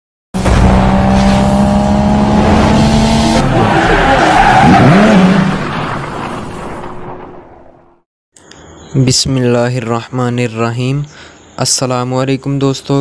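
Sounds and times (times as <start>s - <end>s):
racing car engine at high revs: 0.4s - 5.8s.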